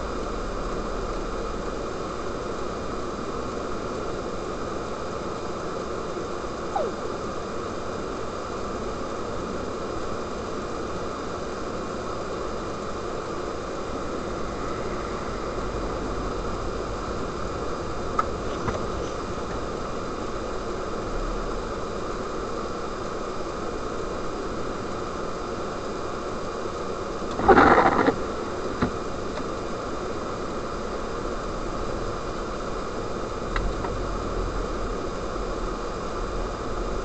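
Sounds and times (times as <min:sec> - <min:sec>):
car driving on snow: 0:13.0 - 0:24.7, 0:27.1 - 0:37.0.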